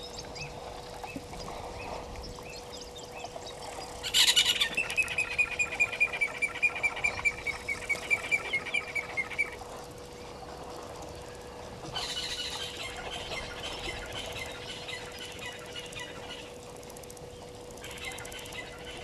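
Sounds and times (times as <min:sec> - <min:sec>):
faint steady hum: 0:00.0 - 0:19.0
bird calling: 0:04.0 - 0:09.6, 0:11.8 - 0:16.7, 0:17.8 - 0:19.0.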